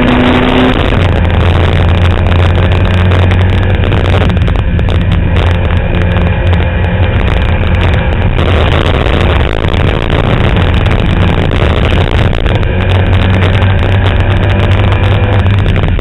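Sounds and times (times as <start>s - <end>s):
race car engine running hard: 0.0s - 16.0s
rush of broad noise: 0.0s - 16.0s.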